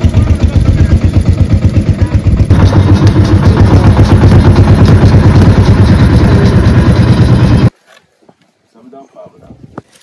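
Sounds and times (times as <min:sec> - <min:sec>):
truck engine chugging: 0:00.0 - 0:07.7.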